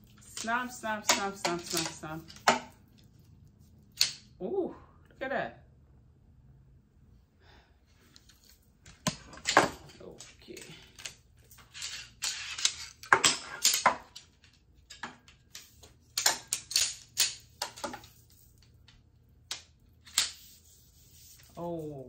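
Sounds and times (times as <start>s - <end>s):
cot poles clicking and clattering: 0.0s - 3.1s, 8.1s - 20.4s.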